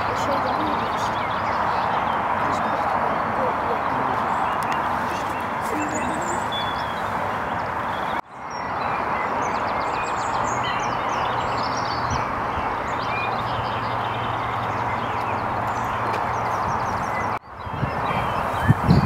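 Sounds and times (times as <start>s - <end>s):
small birds chirping and trilling: 0.0s - 19.0s.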